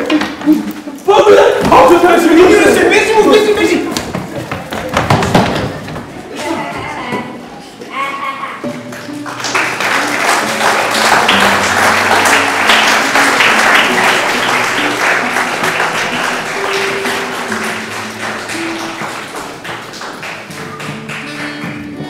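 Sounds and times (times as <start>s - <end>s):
instrumental music: 8.6s - 22.0s
audience clapping: 8.7s - 22.0s.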